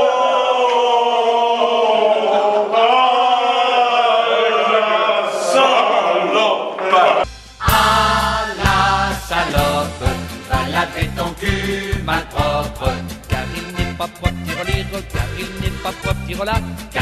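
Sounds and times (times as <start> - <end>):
men singing in chorus: 0.0 - 17.0.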